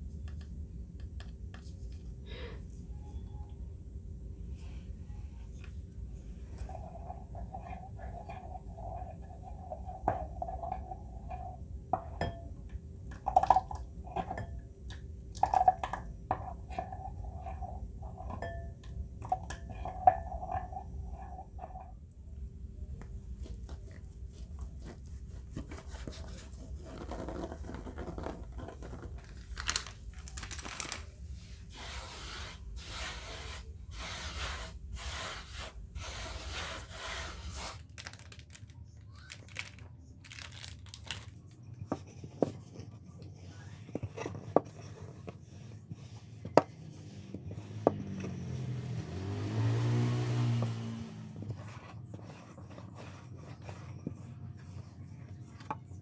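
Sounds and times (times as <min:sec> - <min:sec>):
rolling pin rolling over dough: 0:06.4 - 0:22.1, 0:23.0 - 0:29.2, 0:31.4 - 0:37.9, 0:41.7 - 0:56.0
cling film crinkling: 0:29.1 - 0:31.2, 0:37.8 - 0:41.4.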